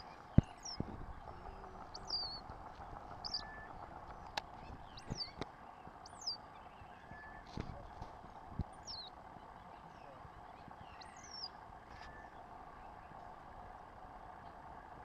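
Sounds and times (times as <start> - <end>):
sharp clicks: 4.0 - 5.6.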